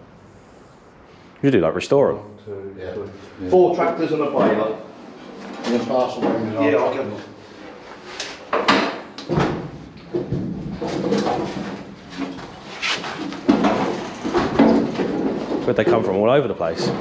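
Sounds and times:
metal clunks and scrapes: 7.6s - 16.1s.

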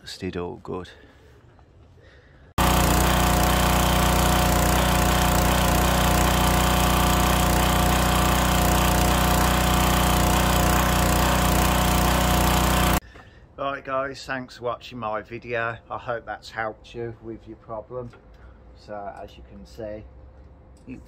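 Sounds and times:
pressure washer engine running: 2.6s - 13.0s.

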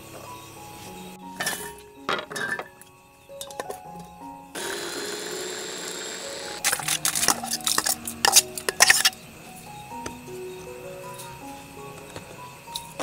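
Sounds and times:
background music: 0.0s - 13.0s
electric food chopper running: 4.6s - 6.6s
spoon clinking in metal bowl: 6.6s - 9.2s.

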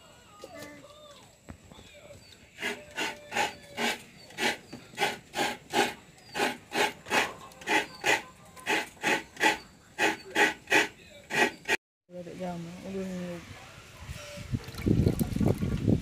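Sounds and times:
coconut rasping on hand grater: 2.6s - 11.8s.

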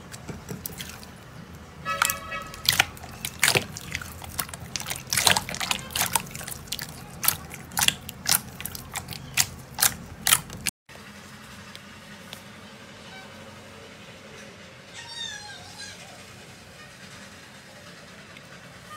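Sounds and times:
slime squeezed with wet clicks: 2.0s - 10.7s.

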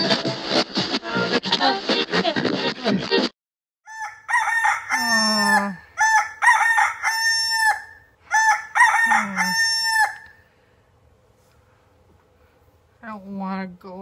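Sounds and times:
rooster crowing: 3.8s - 10.4s.

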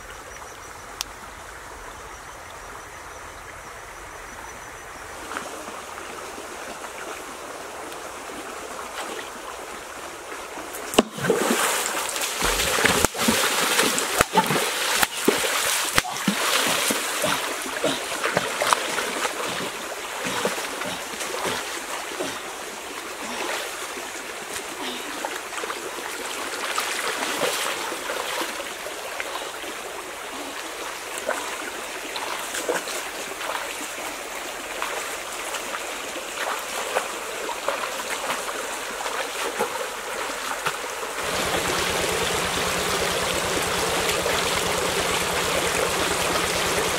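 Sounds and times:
shallow stream flowing: 0.0s - 46.9s
person wading through water: 11.0s - 33.9s, 34.6s - 46.9s.

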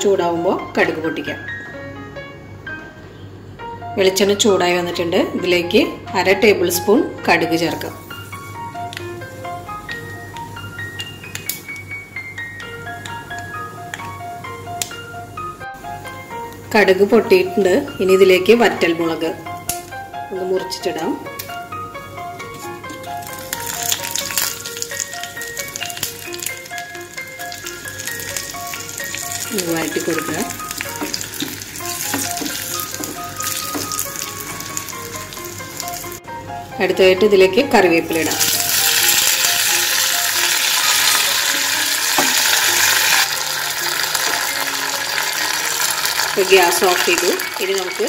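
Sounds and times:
oil sizzling and crackling: 22.6s - 36.2s, 38.3s - 48.0s
light bell-like music: 31.8s - 37.6s.

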